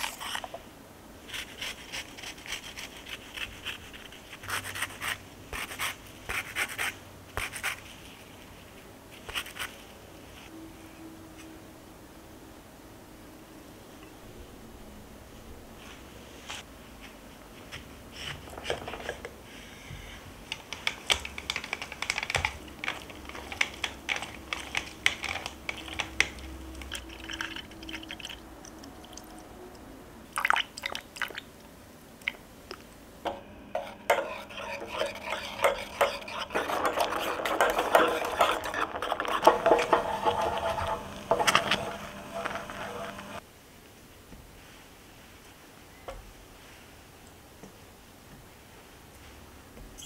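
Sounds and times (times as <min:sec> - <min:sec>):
whisk scraping saucepan: 0:22.6 - 0:28.3, 0:33.3 - 0:43.4.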